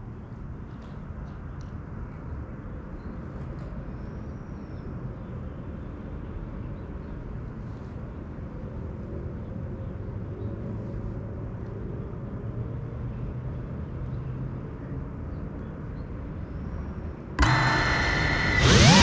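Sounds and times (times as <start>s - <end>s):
loud multi-pitched hum: 17.4s - 19.0s
low outdoor rumble: 17.4s - 19.0s.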